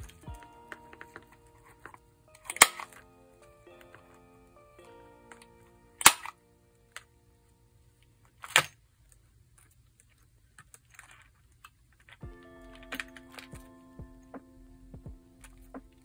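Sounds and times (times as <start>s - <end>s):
light background music: 0.0s - 7.6s, 12.2s - 16.0s.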